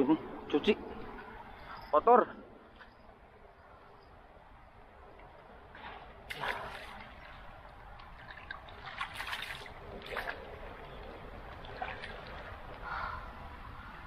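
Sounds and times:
fish splashing in water: 6.2 - 12.9.

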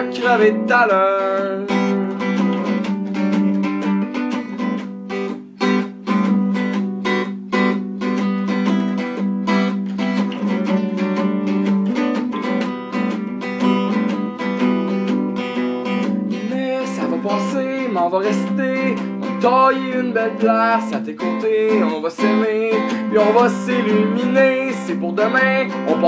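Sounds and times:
acoustic guitar strumming: 0.0 - 26.0.

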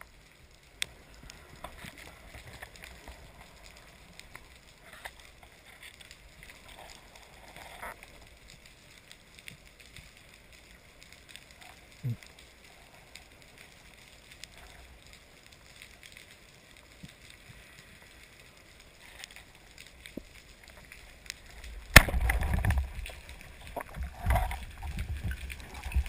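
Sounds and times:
faint underwater clicks: 0.0 - 26.0
low underwater hiss: 0.0 - 26.0
speargun firing crack: 21.9 - 22.6.

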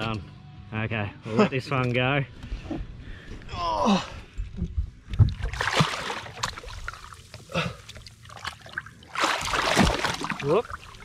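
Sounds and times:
water sloshing against boat: 5.1 - 11.0
fish splashing into water: 5.4 - 7.4, 8.0 - 11.0.

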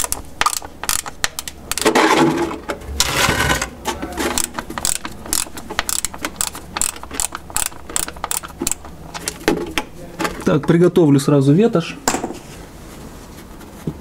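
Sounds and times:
ratchet wrench clicking: 4.4 - 8.8.

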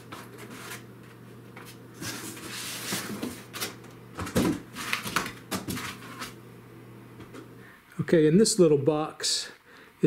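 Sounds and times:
cardboard and foam scraping: 1.6 - 3.7.

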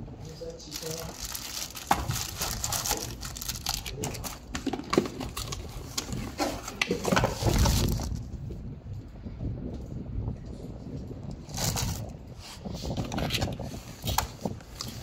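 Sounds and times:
plastic bags crinkling: 0.4 - 6.2
cardboard boxes being handled: 0.7 - 8.2.

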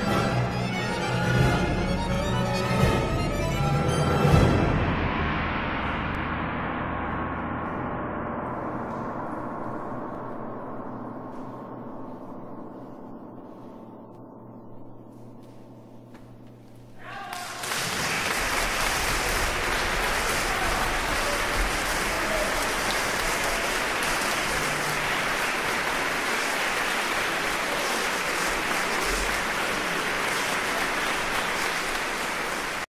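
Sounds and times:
audience applause: 17.1 - 32.9.

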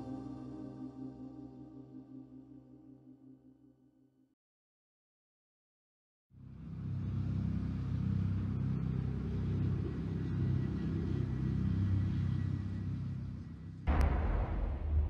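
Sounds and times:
low rumbling drone: 6.6 - 15.0.

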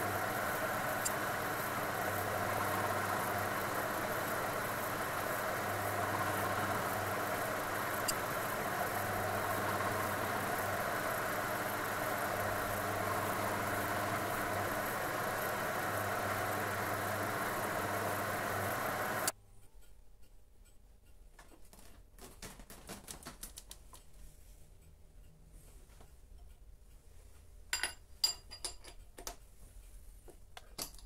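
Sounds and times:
milling machine motor humming: 0.0 - 19.3.

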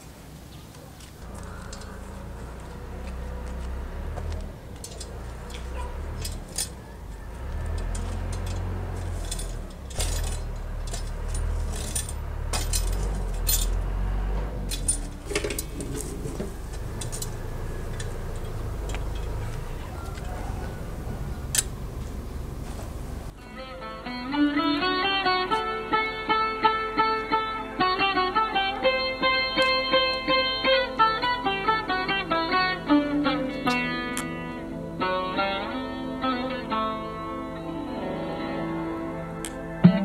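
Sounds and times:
sharp metallic clinks: 1.2 - 2.9, 4.4 - 23.3
steady low rumble: 1.2 - 23.3
metal shovel scraping embers: 4.8 - 13.8, 14.6 - 20.3.

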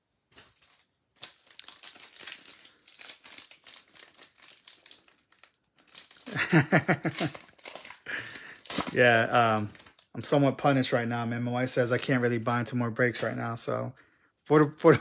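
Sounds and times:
foil wrapper crinkling: 0.4 - 10.4
person speaking: 8.2 - 15.0.

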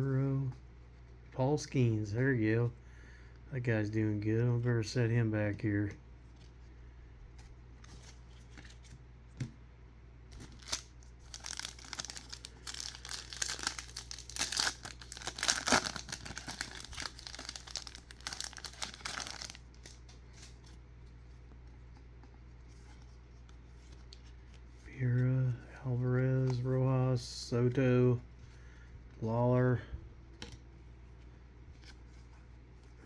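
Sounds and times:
wrapper tearing and crinkling: 10.4 - 20.0.

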